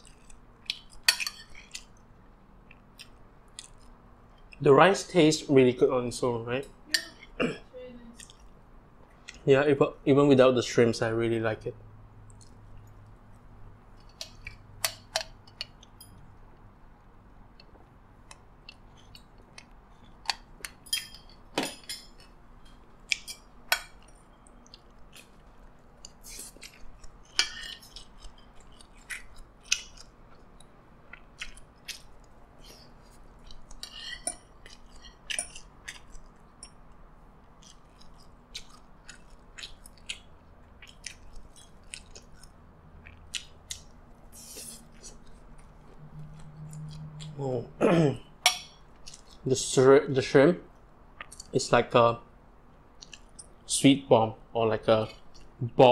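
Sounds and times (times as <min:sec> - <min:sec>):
chewing and mouth sounds: 0:00.0 - 0:04.6, 0:08.1 - 0:09.4, 0:12.2 - 0:21.4, 0:22.1 - 0:47.6, 0:48.8 - 0:49.5, 0:52.8 - 0:53.6.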